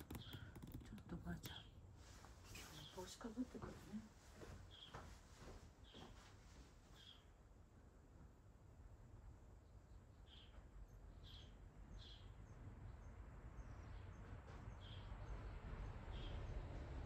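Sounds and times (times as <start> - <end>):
small bird chirping: 0.0 - 4.0, 4.6 - 5.2, 5.8 - 6.2, 6.9 - 7.4, 9.6 - 16.6.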